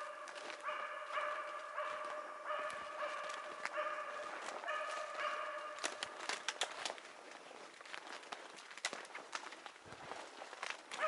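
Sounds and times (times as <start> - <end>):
dog barking: 0.0 - 6.3
twigs snapping underfoot: 2.7 - 11.0.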